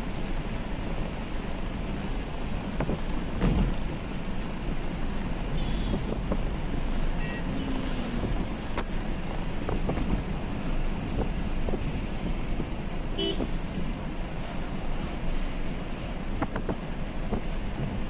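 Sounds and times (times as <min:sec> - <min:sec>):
car road and engine noise: 0:00.0 - 0:18.0
car horn toots: 0:13.2 - 0:13.6.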